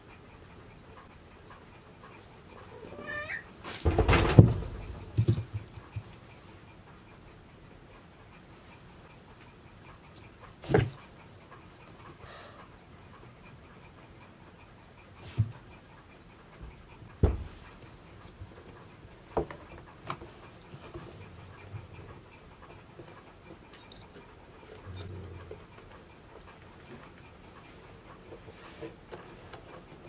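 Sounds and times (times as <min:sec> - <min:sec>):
knocks and taps on cardboard: 0:16.6 - 0:17.6.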